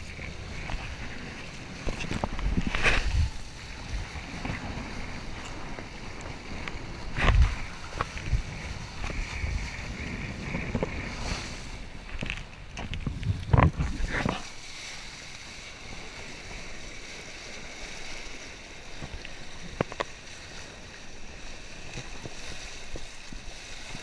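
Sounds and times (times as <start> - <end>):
wind buffeting microphone: 0.0 - 14.5
water rushing and splashing: 0.0 - 24.0.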